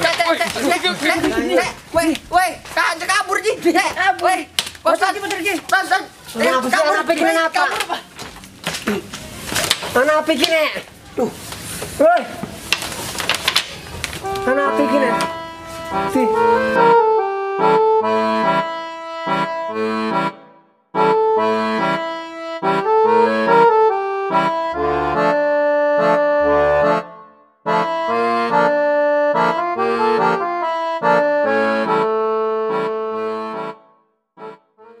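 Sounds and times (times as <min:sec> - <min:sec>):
bouncy instrumental music: 0:14.2 - 0:35.0.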